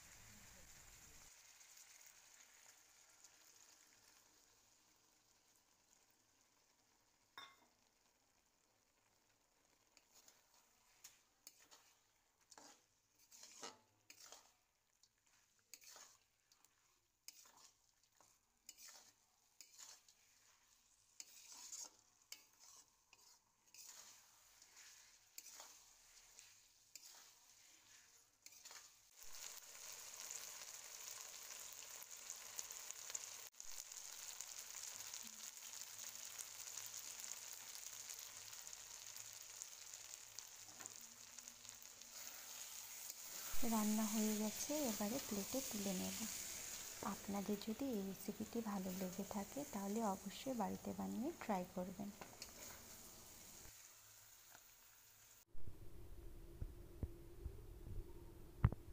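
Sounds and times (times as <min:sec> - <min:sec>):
curry sizzling: 0:00.0 - 0:55.7
spatula scraping a wok: 0:09.6 - 0:55.4.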